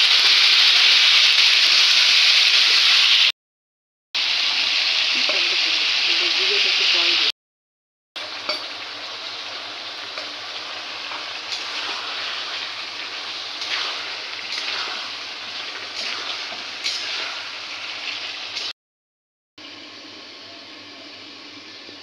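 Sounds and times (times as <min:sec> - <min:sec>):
food sizzling in hot oil: 0:00.0 - 0:03.3, 0:04.2 - 0:07.3, 0:08.2 - 0:18.8, 0:19.6 - 0:22.0
spatula scraping and knocking: 0:13.6 - 0:17.5.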